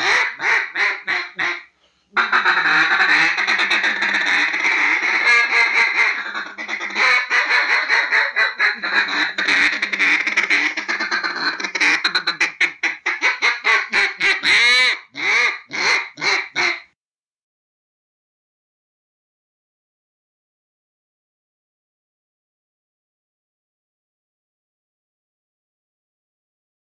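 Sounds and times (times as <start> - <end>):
ducks quacking: 0.0 - 16.9.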